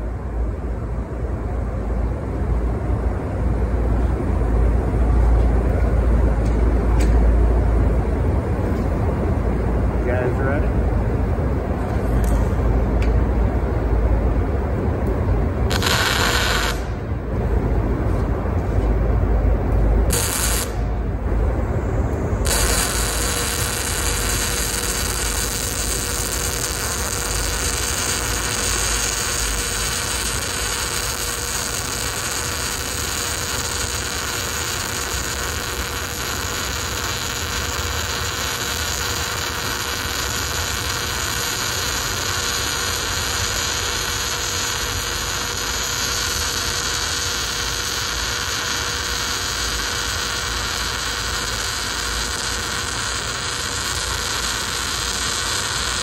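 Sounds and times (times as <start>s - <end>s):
welding arc hissing and buzzing: 15.7s - 56.0s.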